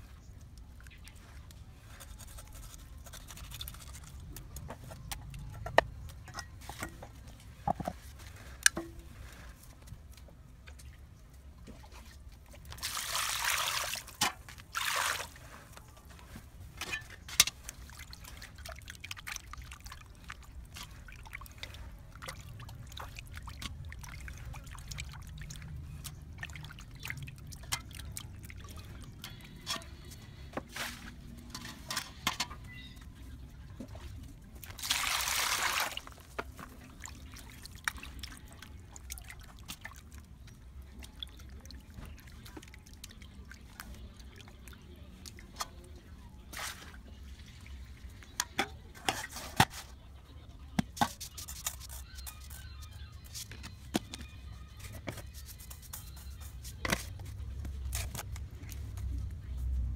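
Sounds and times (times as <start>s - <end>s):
water trickling and pouring: 11.6s - 15.7s, 16.9s - 29.8s, 34.6s - 45.6s.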